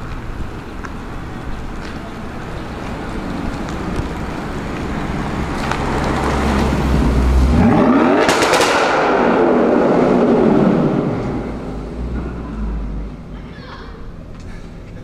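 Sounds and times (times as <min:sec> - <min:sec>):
exhaust crackles: 0:01.6 - 0:13.4
car engine accelerating: 0:01.7 - 0:13.4.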